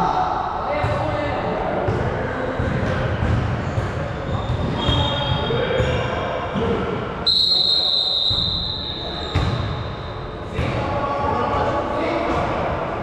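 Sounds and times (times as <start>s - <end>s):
shoe squeaks: 4.1s - 6.0s, 7.4s - 10.1s
referee's whistle blast: 7.3s - 9.7s
basketball bouncing: 9.3s - 9.8s.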